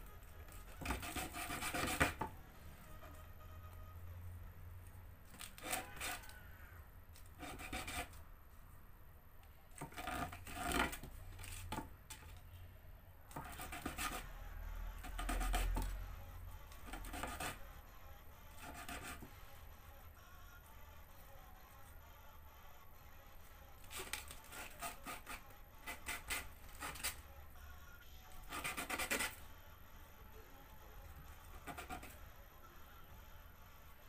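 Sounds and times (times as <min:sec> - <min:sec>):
plastic rasping against abrasive: 0:05.3 - 0:06.4, 0:23.8 - 0:27.2.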